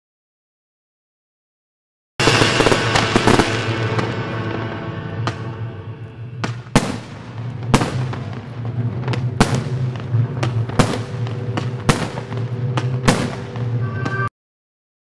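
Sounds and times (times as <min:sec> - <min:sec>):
firework shells bursting: 0:02.2 - 0:05.4, 0:06.0 - 0:13.8
music soundtrack: 0:02.2 - 0:07.6.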